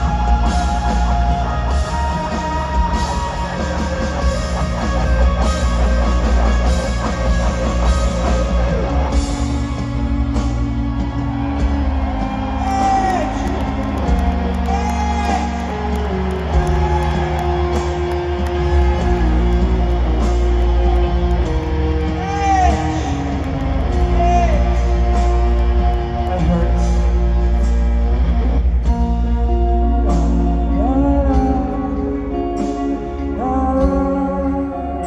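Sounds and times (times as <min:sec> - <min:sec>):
bass line: 0:00.0 - 0:35.0
electric guitar with bends: 0:00.0 - 0:35.0.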